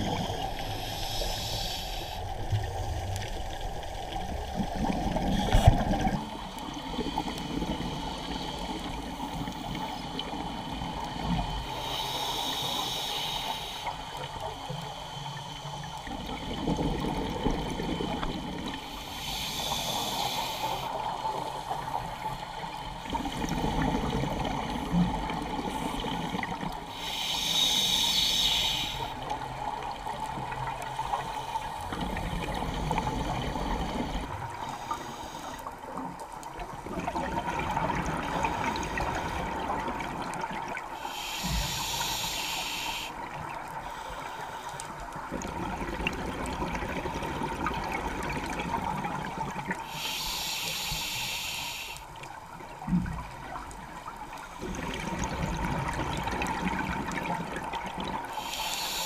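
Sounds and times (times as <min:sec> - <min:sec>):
diver breathing through regulator: 0:00.0 - 0:02.5, 0:11.4 - 0:14.1, 0:17.6 - 0:21.0, 0:25.7 - 0:29.3, 0:40.9 - 0:43.2, 0:49.8 - 0:52.2, 0:58.3 - 0:59.0
exhaled bubbles burbling: 0:45.3 - 0:49.8, 0:54.6 - 0:58.3.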